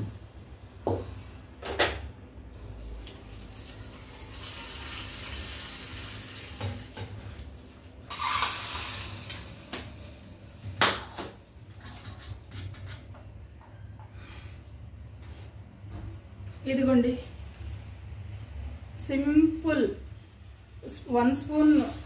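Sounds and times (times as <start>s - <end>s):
tap water running: 2.8s - 10.8s.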